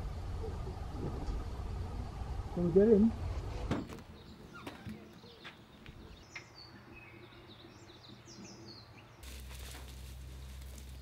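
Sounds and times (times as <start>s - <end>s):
steady low hum: 0.0s - 3.7s
faint birds chirping: 0.0s - 11.0s.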